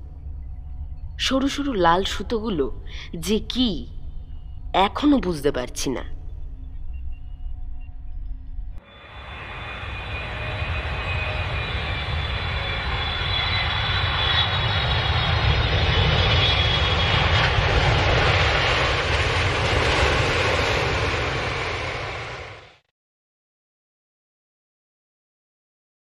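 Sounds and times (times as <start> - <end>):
rocket engine roar: 8.8 - 22.8.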